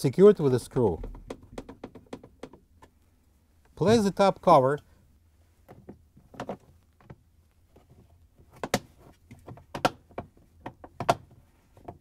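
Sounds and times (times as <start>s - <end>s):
plastic panel clacking: 0.9s - 2.6s.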